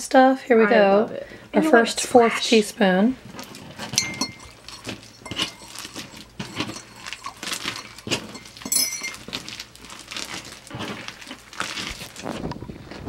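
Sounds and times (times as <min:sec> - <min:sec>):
slime crackling and squelching: 0:03.2 - 0:13.0.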